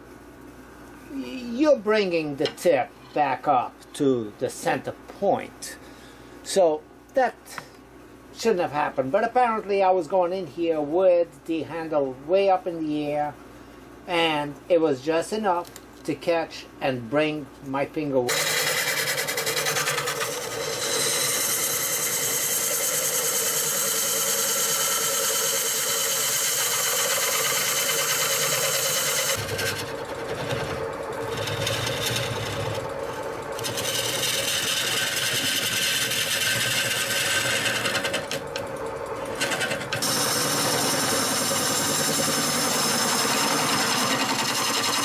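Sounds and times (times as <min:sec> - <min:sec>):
lathe hum: 0:18.3 - 0:45.0
gouge cutting wood shavings hiss: 0:39.4 - 0:45.0.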